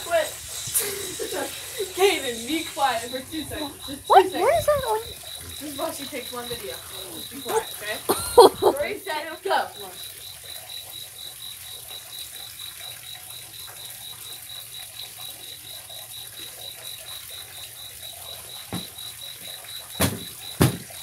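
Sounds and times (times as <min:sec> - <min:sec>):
cricket chirping: 0:00.0 - 0:21.0
short thump: 0:18.7 - 0:18.9.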